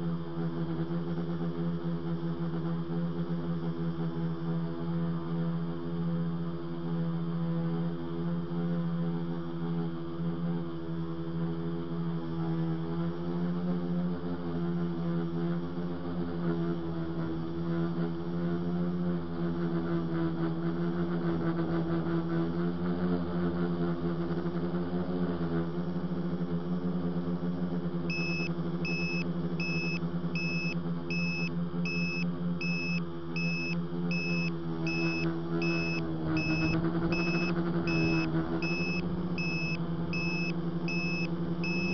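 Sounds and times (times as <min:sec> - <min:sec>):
drone motors whining: 0:28.1 - 0:41.9
high electronic beep: 0:28.1 - 0:41.9.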